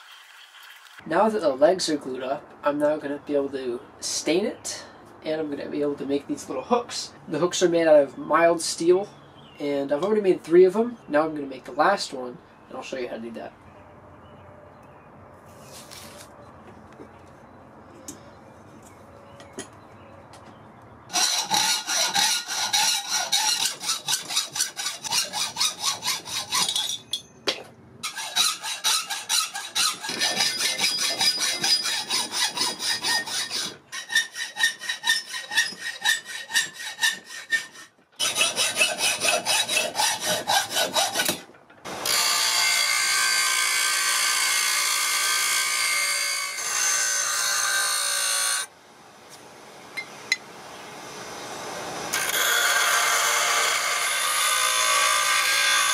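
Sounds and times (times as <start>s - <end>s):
bench grinder grinding steel: 21.1s - 27.0s, 28.0s - 41.4s, 52.1s - 55.9s
hacksaw cutting steel: 21.1s - 48.7s, 52.1s - 55.9s.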